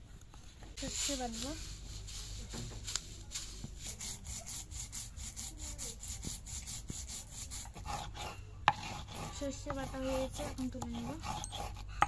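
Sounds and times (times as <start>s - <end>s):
stone scraping on grinding slab: 7.4s - 11.9s.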